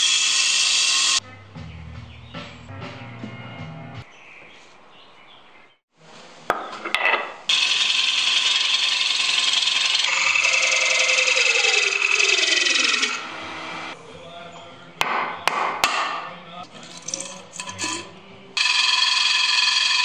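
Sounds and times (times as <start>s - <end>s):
chisel cutting wood on lathe: 0.0s - 1.2s, 7.5s - 13.9s, 16.9s - 20.0s
low background music: 1.2s - 4.1s, 13.2s - 18.6s.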